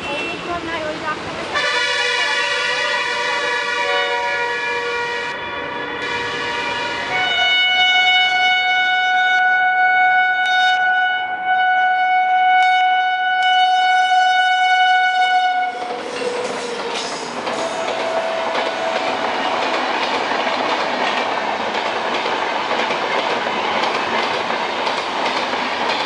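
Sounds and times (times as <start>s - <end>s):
train rushing past: 0.0s - 9.0s, 14.1s - 26.0s
locomotive horn: 1.6s - 16.8s, 17.5s - 19.6s.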